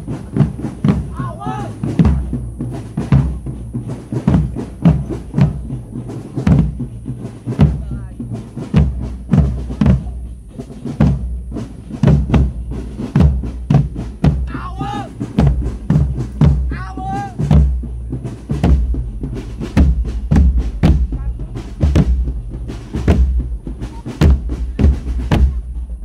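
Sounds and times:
marching drum band playing: 0.0 - 26.0
bass drums struck with mallets: 18.5 - 26.0
sharp drum hits: 18.5 - 26.0.

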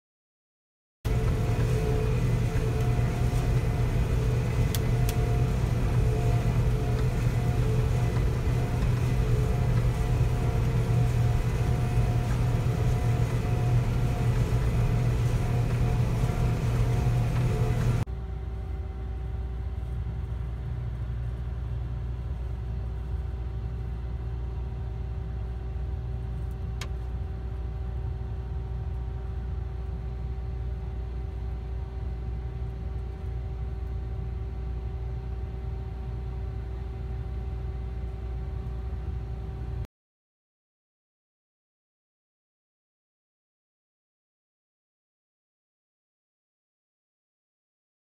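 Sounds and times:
combine harvester droning: 1.1 - 18.1
combine harvester drone: 1.1 - 39.8.

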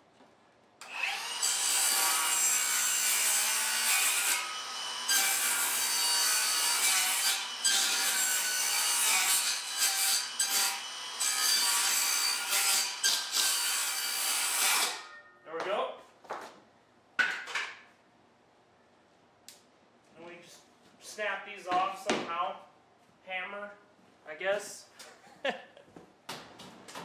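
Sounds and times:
circular saw cutting plywood: 0.8 - 15.0.

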